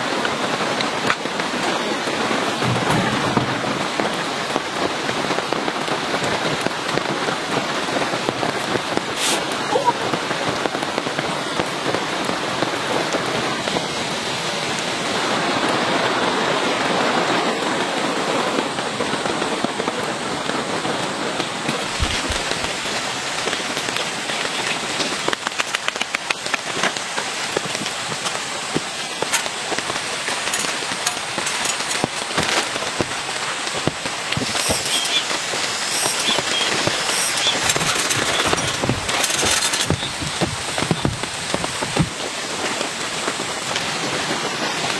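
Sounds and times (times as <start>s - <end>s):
steady rain falling: 0.0s - 44.9s
small clicks and crackles: 21.7s - 42.3s.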